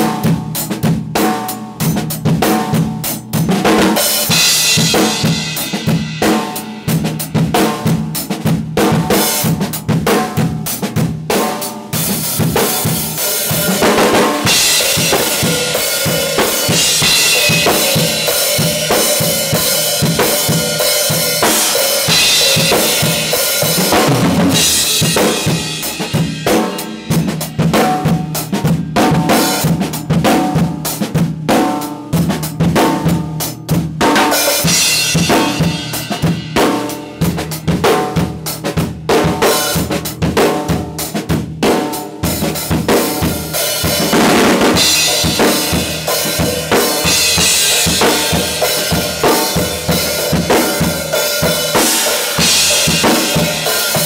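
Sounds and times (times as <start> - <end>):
drum kit played with sticks: 0.0 - 54.0.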